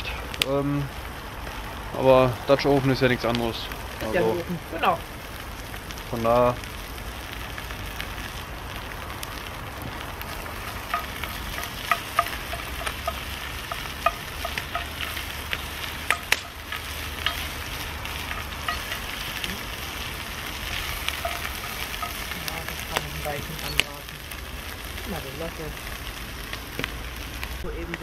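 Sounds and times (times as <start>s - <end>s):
meat sizzling: 0.0s - 28.0s
sharp clicks and pops: 7.0s - 25.1s
wooden spoon stirring: 10.3s - 23.6s.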